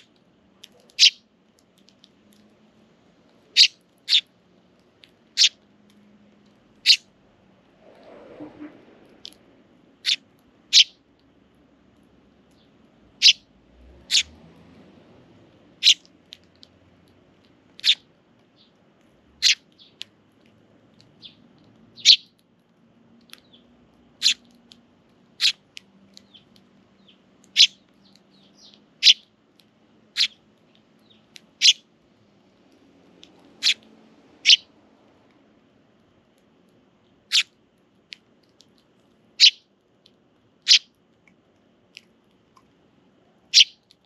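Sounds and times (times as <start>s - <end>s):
sparrows chirping: 0.0s - 2.7s, 3.4s - 5.6s, 6.7s - 7.1s, 10.0s - 11.1s, 12.2s - 14.4s, 15.7s - 18.8s, 19.4s - 20.1s, 21.0s - 22.4s, 23.2s - 31.9s, 33.3s - 34.8s, 37.3s - 37.6s, 39.4s - 39.7s, 40.6s - 41.0s, 43.5s - 44.0s.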